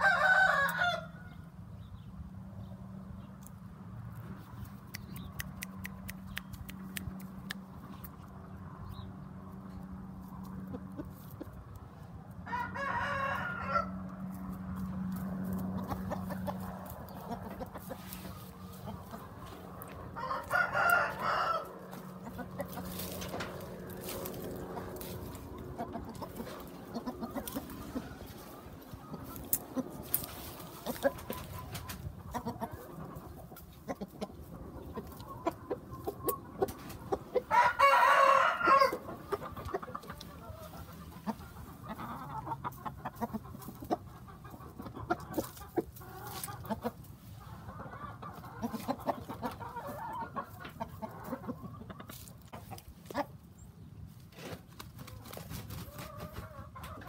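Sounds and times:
rooster crowing: 0:00.0 - 0:01.4, 0:12.4 - 0:14.0, 0:20.1 - 0:21.9, 0:37.4 - 0:39.1
chicken clucking softly: 0:02.6 - 0:54.2, 0:54.8 - 0:57.0
rooster pecking sharp clicks: 0:04.6 - 0:08.2
steady low hum: 0:13.9 - 0:37.5.

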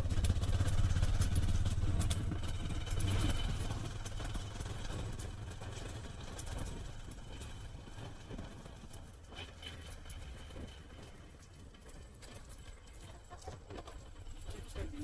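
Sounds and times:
road and wind noise: 0:00.0 - 0:12.6
motorcycle engine running: 0:00.0 - 0:15.0.

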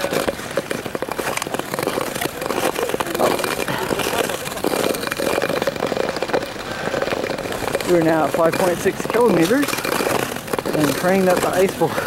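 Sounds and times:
ice skate blades clattering: 0:00.0 - 0:12.0.

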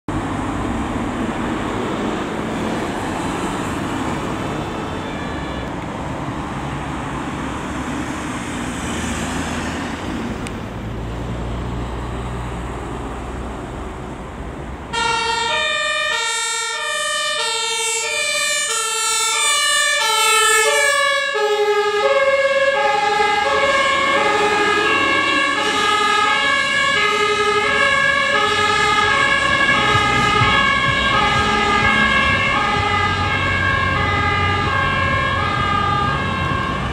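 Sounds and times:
traffic on a busy road: 0:00.1 - 0:36.9
faint two-tone sirens: 0:02.5 - 0:07.0, 0:14.9 - 0:36.9
loud two-tone emergency horns: 0:04.5 - 0:05.9, 0:14.9 - 0:36.9.

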